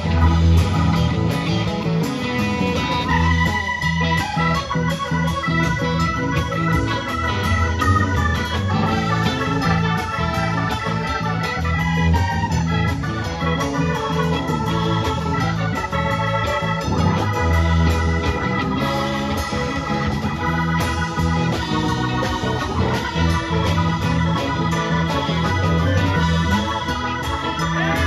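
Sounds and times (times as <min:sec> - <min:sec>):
live rock band playing: 0:00.0 - 0:28.0
organ: 0:00.0 - 0:28.0.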